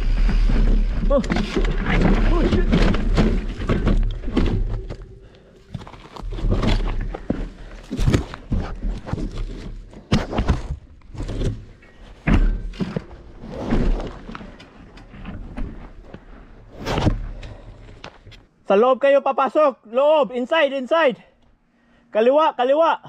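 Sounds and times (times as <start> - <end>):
bike clattering over rocks: 0.0 - 14.8.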